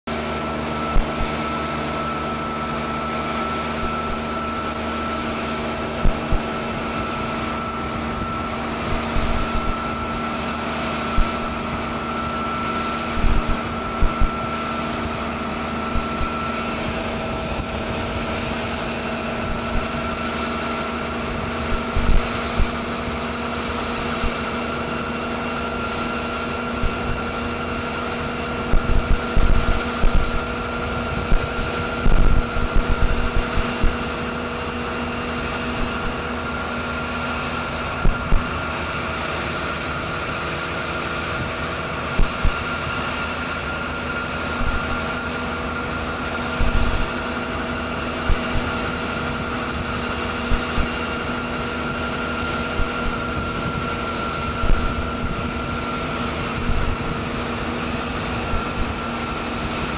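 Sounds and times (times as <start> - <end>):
aircraft engine drone: 0.1 - 59.9
wind hiss: 0.9 - 1.8, 2.7 - 36.3, 41.4 - 45.4, 46.2 - 59.9
low thumps on microphone: 11.1 - 11.6, 13.2 - 14.4, 21.7 - 22.8, 26.8 - 27.2, 31.3 - 34.1, 35.8 - 36.2, 42.2 - 42.6, 44.6 - 45.0, 46.6 - 47.2, 48.2 - 48.7.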